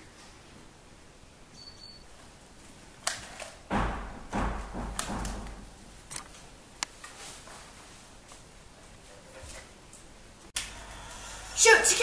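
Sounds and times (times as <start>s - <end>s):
thuds and rustling: 3.7s - 5.7s.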